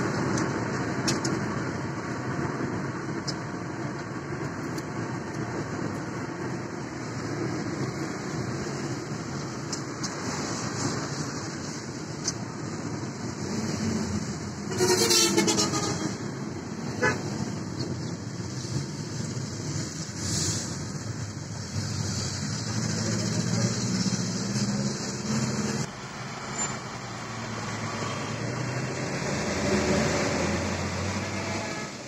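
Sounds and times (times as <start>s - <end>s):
traffic and engine noise: 0.0s - 32.0s
vehicle horn: 14.6s - 16.2s, 31.2s - 32.0s.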